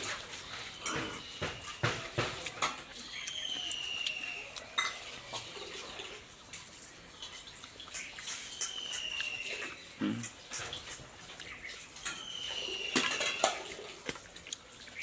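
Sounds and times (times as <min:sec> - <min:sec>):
wet chewing and slurping: 0:00.0 - 0:15.0
light clinks against plates: 0:00.5 - 0:02.9, 0:04.7 - 0:05.2, 0:12.0 - 0:13.8.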